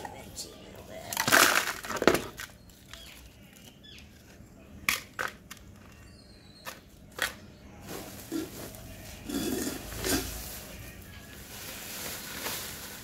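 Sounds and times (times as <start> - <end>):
dry soil crumbling: 6.8 - 13.0.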